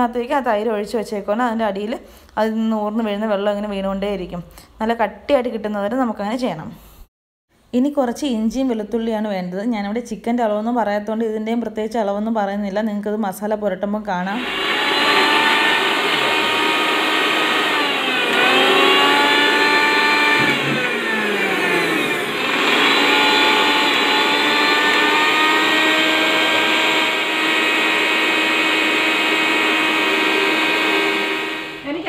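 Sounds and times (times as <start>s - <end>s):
mixer grinder motor whine: 14.3s - 32.0s.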